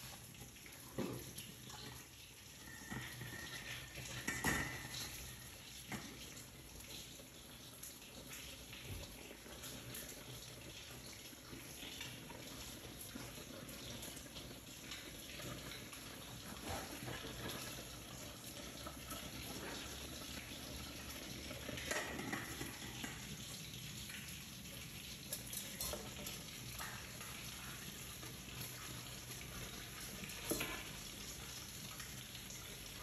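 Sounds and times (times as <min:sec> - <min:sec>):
steady watery hiss: 0:00.0 - 0:33.0.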